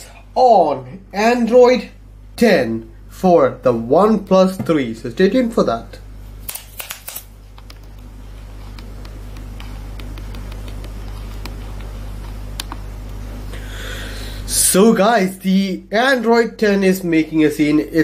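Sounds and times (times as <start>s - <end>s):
sharp clicks: 6.5s - 8.1s.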